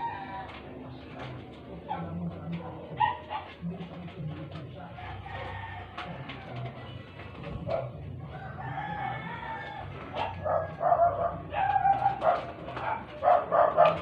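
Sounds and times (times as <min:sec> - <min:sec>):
rooster crowing: 0:05.0 - 0:06.4, 0:08.3 - 0:12.1
dog yelping: 0:10.2 - 0:14.0.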